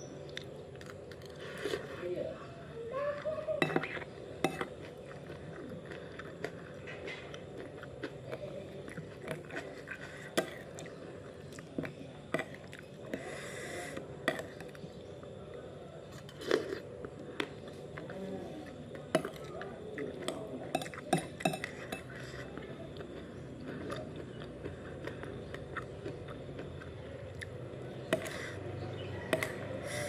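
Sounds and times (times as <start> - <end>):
chewing: 0.2 - 2.0, 3.1 - 30.0
metal spoon clinking on plate: 20.7 - 22.1.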